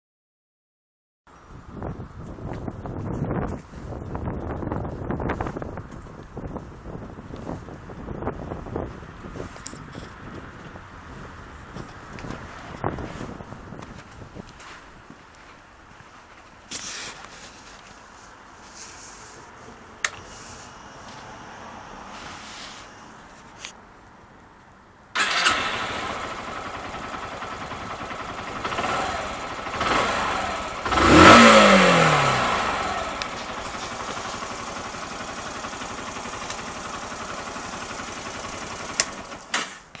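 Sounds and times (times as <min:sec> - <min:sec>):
engine revving: 0:25.2 - 0:36.2
motorcycle engine starting and idling: 0:25.2 - 0:40.0.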